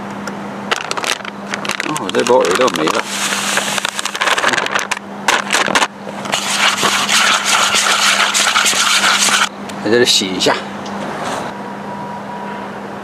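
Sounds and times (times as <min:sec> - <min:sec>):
plastic bag crinkling: 0:00.7 - 0:05.0.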